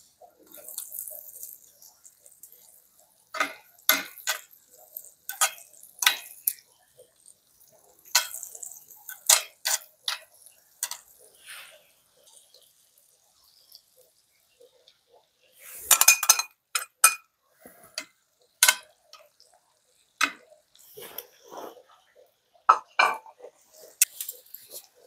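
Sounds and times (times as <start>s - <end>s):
metal utensils clinking on dishes: 0.4s - 6.7s, 8.0s - 11.2s, 15.8s - 19.4s, 22.7s - 25.0s.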